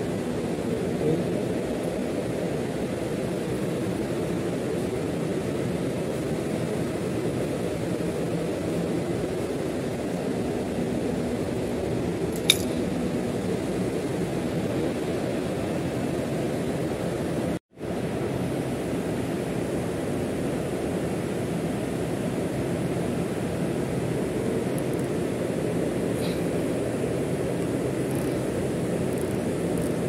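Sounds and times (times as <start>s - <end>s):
low drone of machinery: 0.0s - 30.0s
metallic clink of spanner: 12.4s - 12.8s.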